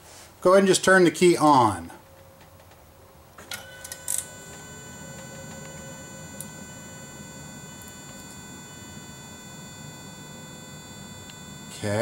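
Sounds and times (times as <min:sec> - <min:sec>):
electric fuel pump whining: 0:03.4 - 0:12.0.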